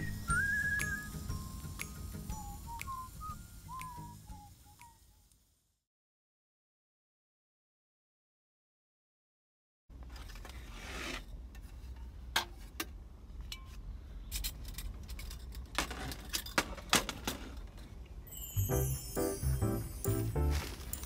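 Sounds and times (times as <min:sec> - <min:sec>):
music: 0:00.0 - 0:05.2, 0:18.3 - 0:21.0.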